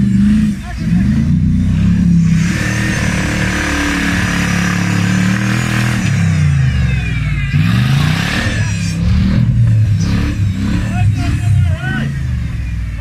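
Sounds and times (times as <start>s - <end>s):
off-road vehicle engine revving: 0.0s - 13.0s.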